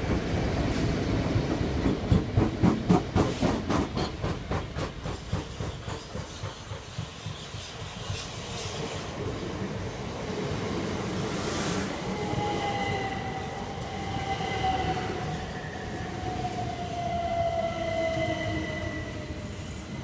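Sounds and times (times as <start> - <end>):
train wheels clicking over rail joints: 0.0 - 9.0.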